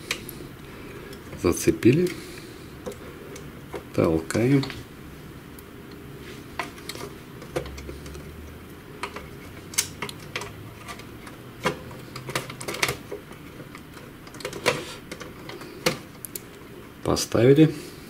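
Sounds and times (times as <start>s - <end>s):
plastic and metal parts clicking: 9.0s - 16.4s.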